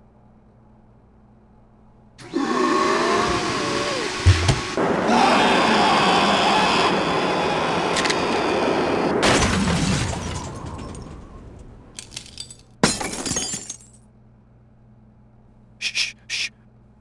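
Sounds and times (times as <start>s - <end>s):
loud shattering crash: 9.2s - 11.3s.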